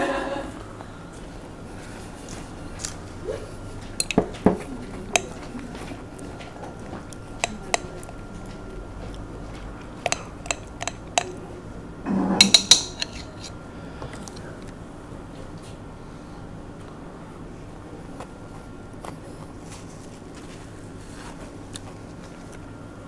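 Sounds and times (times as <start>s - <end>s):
metal spoon scraping glass jar: 4.0s - 4.2s, 10.1s - 11.4s, 12.4s - 13.6s.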